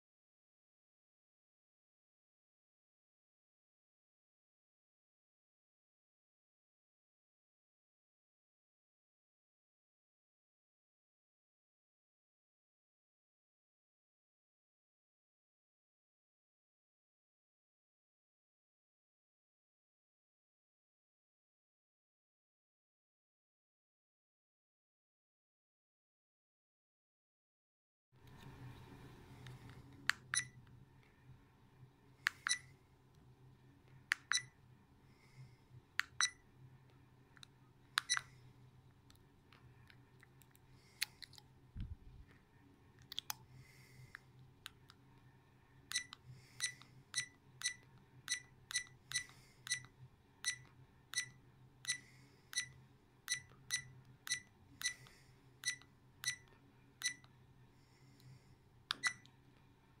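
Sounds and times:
camera button clicking beeps: 30.3 - 30.5, 32.3 - 32.6, 34.2 - 34.5, 38.0 - 38.3, 45.9 - 50.6, 53.3 - 55.0, 55.6 - 56.4, 58.9 - 59.3.

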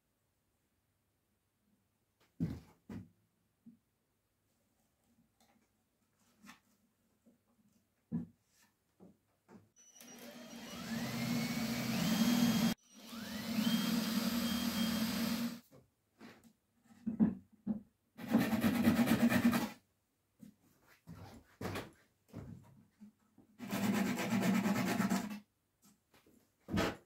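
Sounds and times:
power tool motor whine: 9.8 - 15.6.

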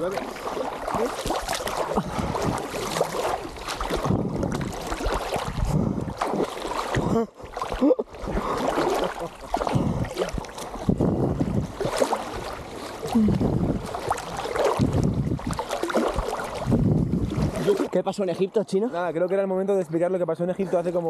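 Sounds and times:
water sloshing and splashing: 0.0 - 20.1
wind buffeting microphone: 0.8 - 7.2, 9.6 - 18.0.

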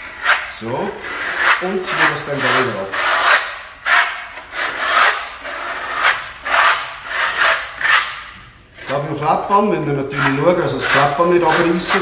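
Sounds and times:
spatula scraping coating on tabletop: 0.2 - 8.2.

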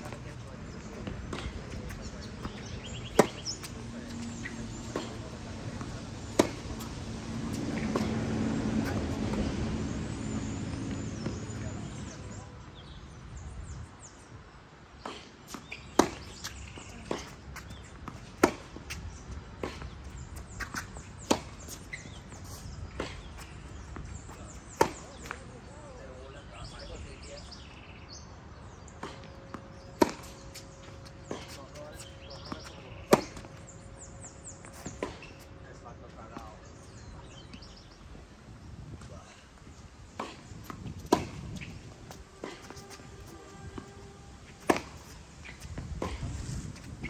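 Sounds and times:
tennis ball bouncing: 0.0 - 12.4, 15.0 - 25.4, 28.9 - 35.6, 40.1 - 47.0
tennis ball struck by racket: 0.1 - 12.2, 15.0 - 19.0, 19.6 - 22.4, 23.0 - 25.4, 29.0 - 35.4, 40.1 - 47.0.

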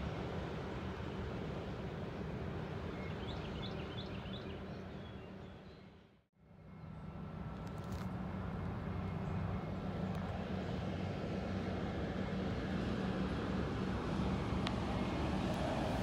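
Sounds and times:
diesel railcar engine drone: 0.0 - 16.0.

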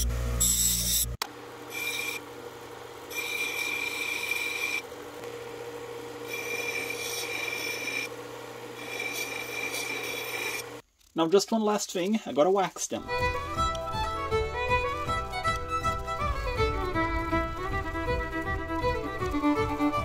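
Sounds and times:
bench grinder grinding steel: 0.0 - 2.4, 3.0 - 4.9, 6.2 - 10.8
disc sharpener humming: 0.0 - 10.8, 13.0 - 20.0
hissing grinding on abrasive disc: 6.2 - 8.1, 8.7 - 10.8.

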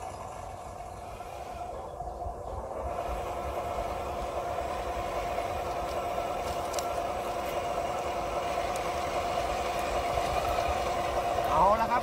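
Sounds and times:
model tractor engine humming: 0.0 - 12.0
faint clicks from tracks: 4.2 - 11.8.

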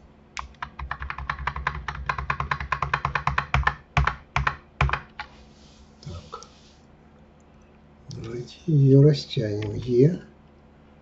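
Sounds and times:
keyboard key clicking rapidly: 0.4 - 5.3.

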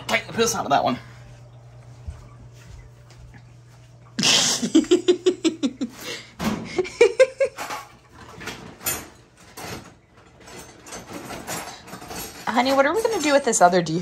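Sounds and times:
person laughing: 4.2 - 7.7.

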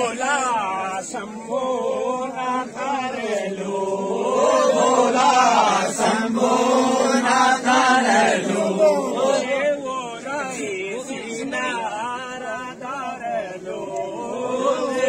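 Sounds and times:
men singing in chorus: 0.0 - 15.0.

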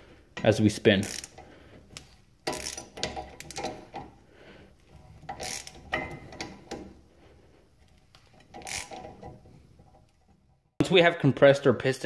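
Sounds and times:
metal clicking and scraping: 0.4 - 4.2, 4.8 - 7.1, 7.8 - 10.6.

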